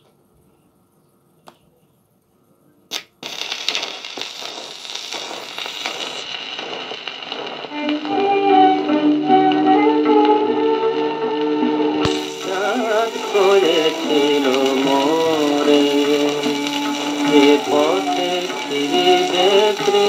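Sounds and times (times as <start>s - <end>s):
record surface hiss and crackle: 0.0s - 20.0s
stylus thump on record: 3.8s - 9.4s
instrumental song introduction: 5.4s - 20.0s.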